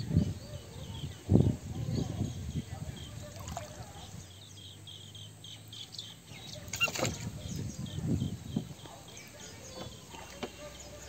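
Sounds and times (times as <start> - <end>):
small bird chirping: 0.1 - 11.0
plastic squeak: 6.7 - 7.2.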